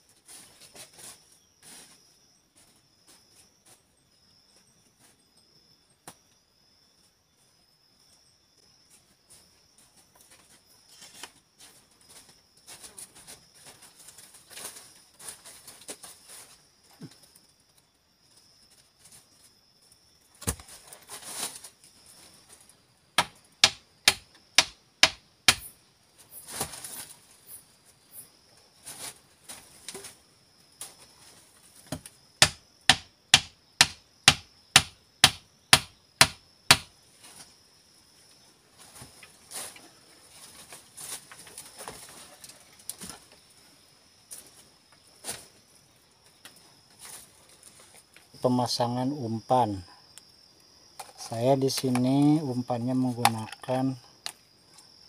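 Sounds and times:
stake pounded into ground: 20.4 - 20.8, 23.2 - 25.7, 31.9 - 36.9
dry leaves rustling: 20.8 - 21.8.

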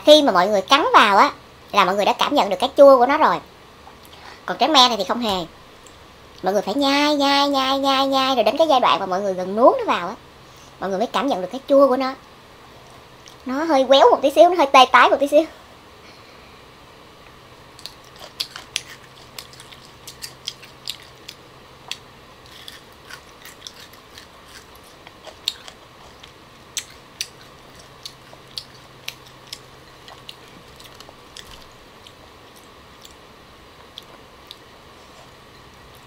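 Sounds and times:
crunchy chewing: 17.7 - 33.2, 33.8 - 36.0.

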